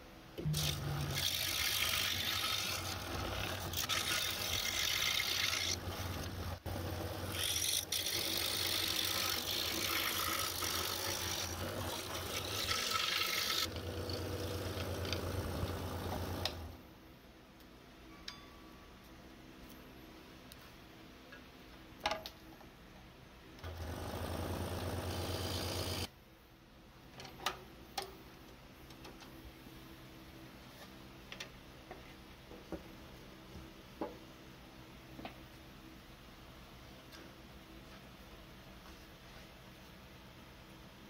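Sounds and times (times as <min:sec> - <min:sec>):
scroll saw cutting wood: 0:00.5 - 0:06.4, 0:07.2 - 0:16.7, 0:23.6 - 0:26.1.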